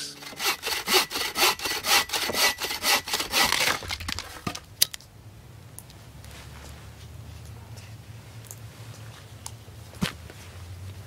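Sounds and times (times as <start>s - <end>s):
saw cutting through log: 0.0s - 4.2s.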